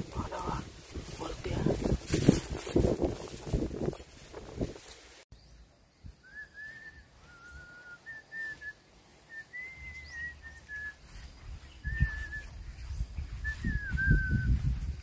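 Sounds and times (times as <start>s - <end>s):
person whistling a tune: 6.2s - 11.0s, 11.8s - 12.6s, 13.4s - 14.8s.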